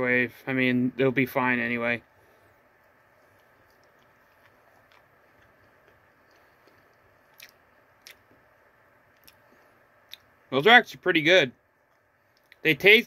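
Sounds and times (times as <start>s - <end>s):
chewing soft food: 2.3s - 10.4s, 11.8s - 12.7s.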